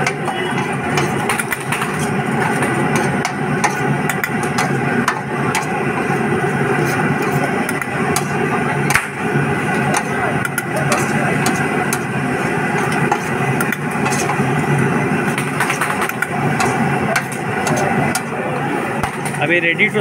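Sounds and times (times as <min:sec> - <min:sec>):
engine-like hum: 0:00.0 - 0:20.0.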